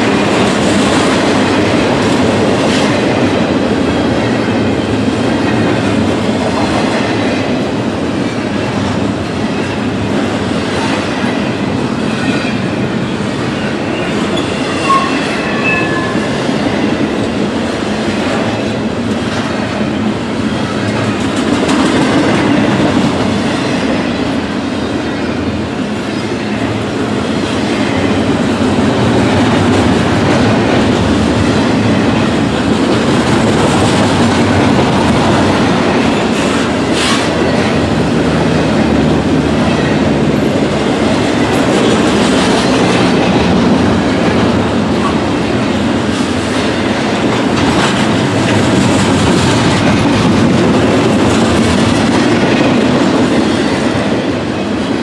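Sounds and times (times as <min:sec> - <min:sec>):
freight train rumbling past: 0:00.0 - 0:55.0
wheel squeal: 0:13.9 - 0:16.3.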